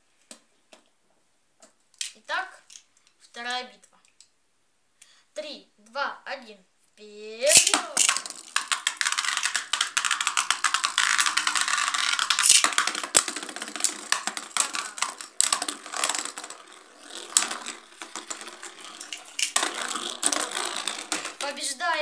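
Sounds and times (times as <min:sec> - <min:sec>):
spinning tops whirring and scraping: 0:07.4 - 0:22.0
spinning tops clashing: 0:07.5 - 0:22.0.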